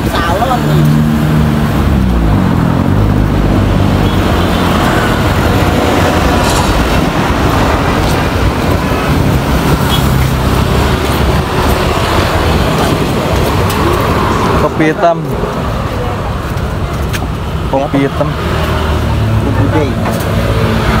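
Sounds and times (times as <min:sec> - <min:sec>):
tyres on the road: 0:00.0 - 0:21.0
vehicle engines running: 0:00.0 - 0:21.0.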